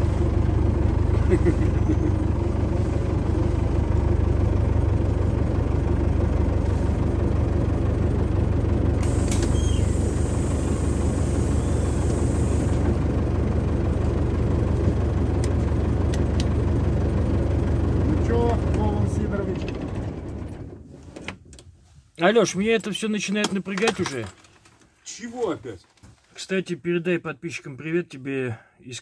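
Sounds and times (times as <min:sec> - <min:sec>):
diesel bus engine humming: 0:00.0 - 0:21.2
high hiss: 0:09.1 - 0:12.7.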